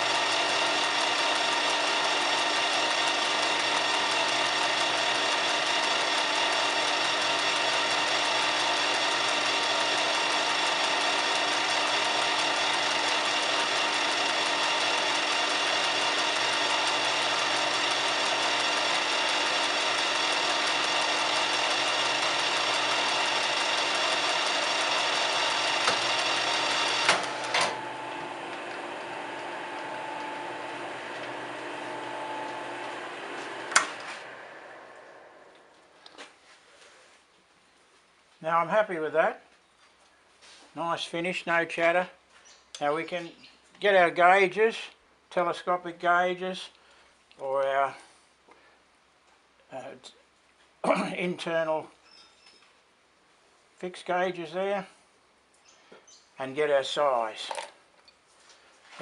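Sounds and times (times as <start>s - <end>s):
metal lathe whining: 0.0s - 35.9s.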